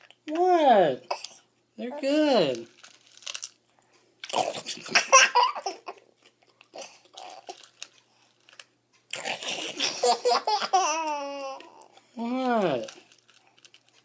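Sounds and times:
dry cereal being chewed: 2.4s - 4.9s, 5.9s - 10.0s, 11.1s - 14.0s
baby laughing: 4.4s - 6.0s, 9.3s - 11.8s.

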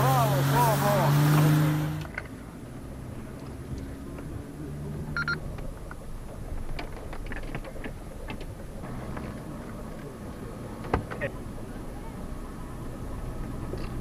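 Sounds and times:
car engine running low: 0.0s - 14.0s
brief beep: 5.2s - 5.4s
body and suspension rattles: 5.4s - 14.0s.

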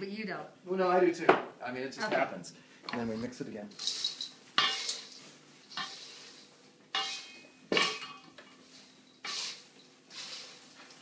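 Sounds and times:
tongs clinking in metal bowl: 3.7s - 6.3s, 6.9s - 10.4s.

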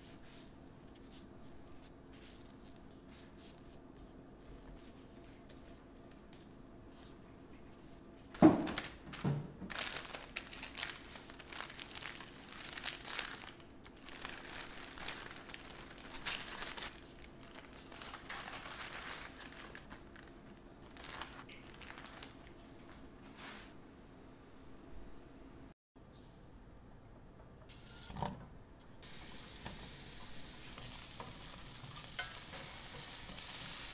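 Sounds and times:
plastic bag and paper crinkling: 8.3s - 23.1s.

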